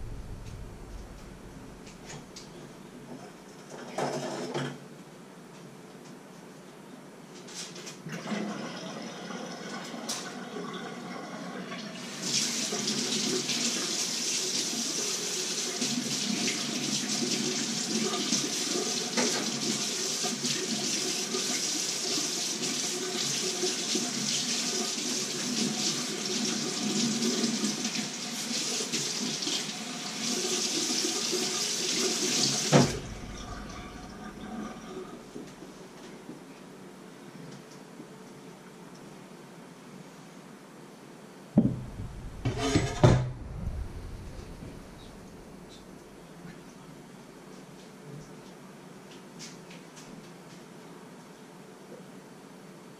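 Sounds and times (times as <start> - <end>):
sharp knock: 41.6 - 44.8.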